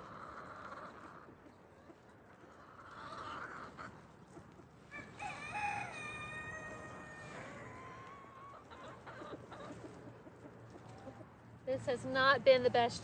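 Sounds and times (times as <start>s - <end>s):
rooster crowing: 4.9s - 8.6s.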